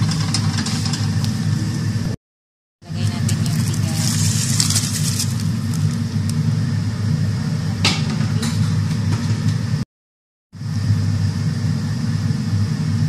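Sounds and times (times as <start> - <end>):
broth boiling in a pot: 0.0 - 2.2, 2.8 - 9.8.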